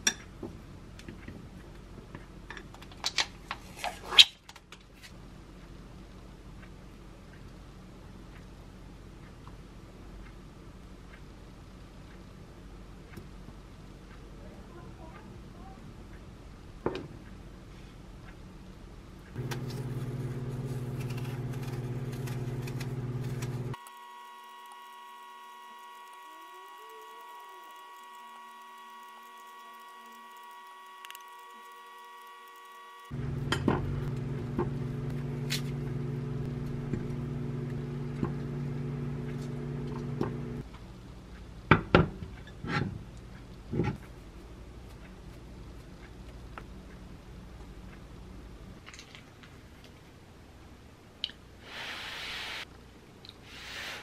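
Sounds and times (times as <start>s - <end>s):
microwave oven humming: 19.3s - 40.7s.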